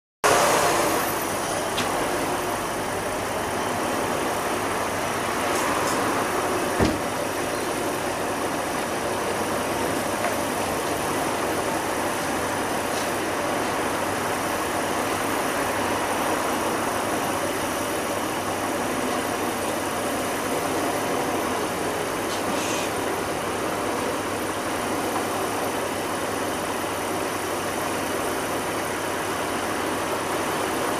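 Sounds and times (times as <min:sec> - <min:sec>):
short knock: 0:06.8 - 0:07.1.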